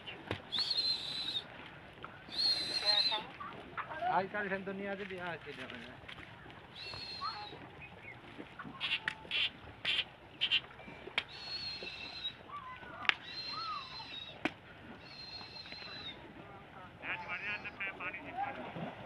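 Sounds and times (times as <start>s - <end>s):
birds whistling and chirping: 0.5s - 1.5s, 2.3s - 3.3s, 6.7s - 8.2s, 8.8s - 14.4s, 15.0s - 16.2s.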